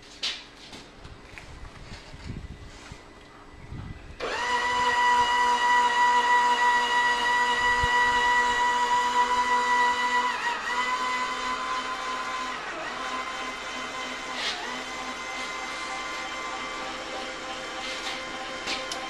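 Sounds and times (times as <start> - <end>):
electric motor whining: 4.2 - 19.0.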